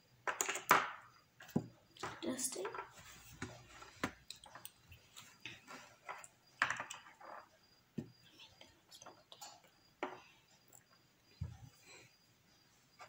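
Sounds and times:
chess pieces clicking on board: 0:00.2 - 0:02.9.

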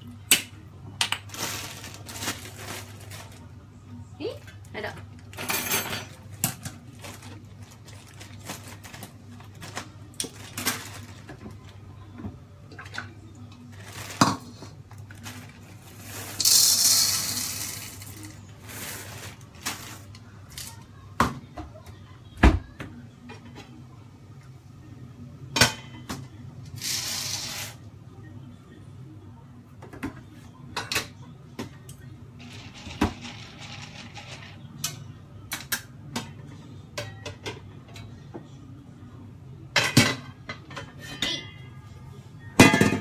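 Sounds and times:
plastic bag rustling: 0:01.3 - 0:03.5, 0:06.9 - 0:11.4, 0:13.7 - 0:16.6
dishes and utensils clinking: 0:04.9 - 0:07.3, 0:25.5 - 0:26.3, 0:32.4 - 0:38.2, 0:39.7 - 0:41.9, 0:42.6 - 0:43.0.

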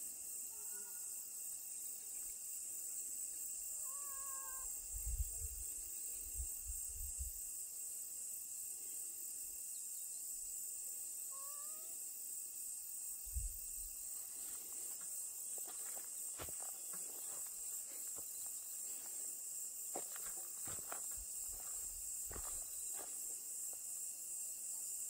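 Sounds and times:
insect chorus: 0:00.0 - 0:25.0
cat meowing: 0:03.8 - 0:04.7, 0:11.3 - 0:12.0.

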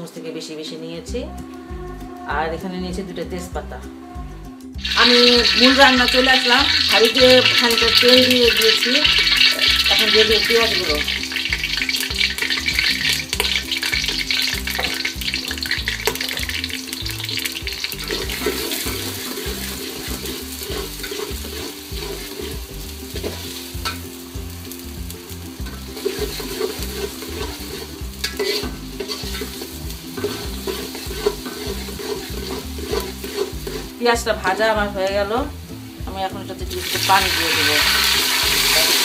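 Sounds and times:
metal spatula scraping a pot: 0:04.8 - 0:24.1, 0:25.6 - 0:34.1
onions sizzling in hot oil: 0:04.8 - 0:39.0.

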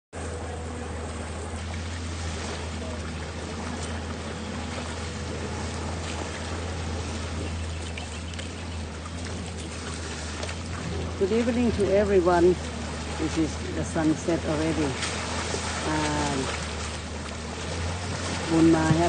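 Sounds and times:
river water splashing: 0:00.2 - 0:19.0
steady low hum: 0:00.2 - 0:19.0.

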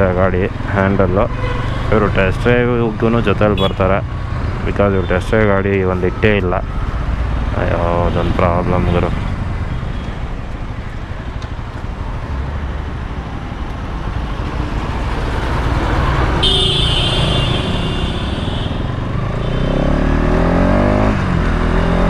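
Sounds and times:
road noise: 0:00.0 - 0:22.0
high steady horn: 0:01.3 - 0:01.9, 0:03.5 - 0:03.9, 0:16.4 - 0:19.8.

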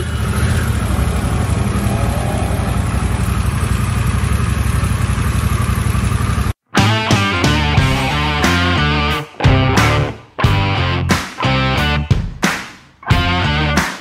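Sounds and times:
motorcycle engine idling: 0:00.0 - 0:06.6.

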